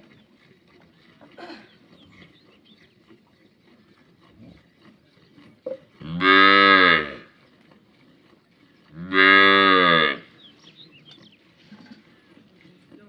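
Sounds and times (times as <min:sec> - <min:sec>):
cow mooing: 0:05.6 - 0:07.4, 0:08.9 - 0:10.3.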